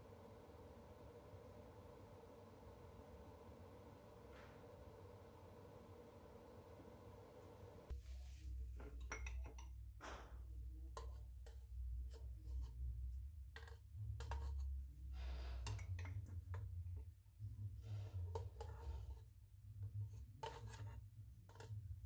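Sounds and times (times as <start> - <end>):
metal spoon clinking in glass jar: 9.0 - 9.8.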